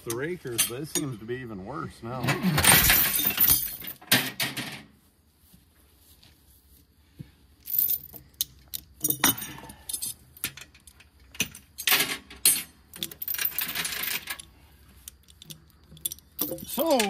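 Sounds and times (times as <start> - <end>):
metal chain jingling: 2.6 - 4.0, 7.6 - 17.0.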